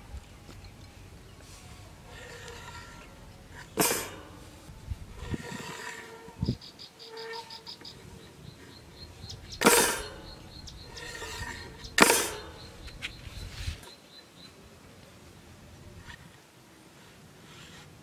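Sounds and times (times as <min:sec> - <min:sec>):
rustling scrapes on sandy ground: 0:00.0 - 0:14.0, 0:15.8 - 0:18.0
insect rapid high ticking: 0:06.6 - 0:14.5.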